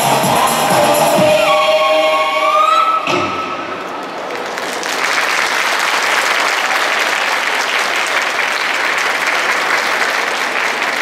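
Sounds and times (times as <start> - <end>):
audience applause: 4.0 - 11.0.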